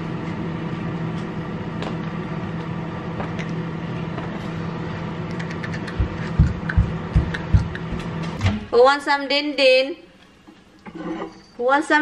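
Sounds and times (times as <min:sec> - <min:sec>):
appliance humming: 0:00.0 - 0:09.0.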